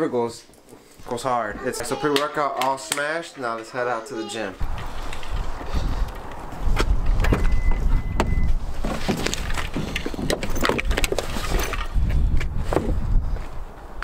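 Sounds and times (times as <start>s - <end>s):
car trunk opening: 7.1s - 8.5s
high beep: 7.3s - 8.5s.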